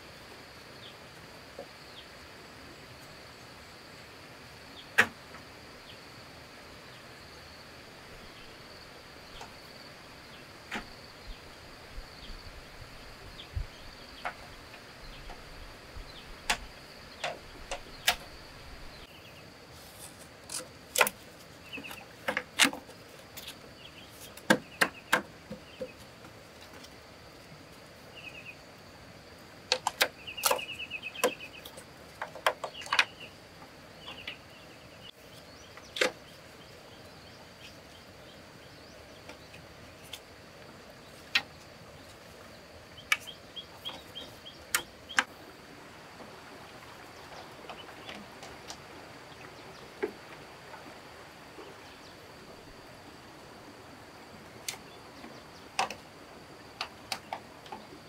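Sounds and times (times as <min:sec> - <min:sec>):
high insect drone: 0:00.0 - 0:58.0
birds twittering: 0:06.8 - 0:26.3, 0:28.0 - 0:28.7, 0:29.7 - 0:40.3, 0:41.0 - 0:45.5, 0:46.3 - 0:52.8.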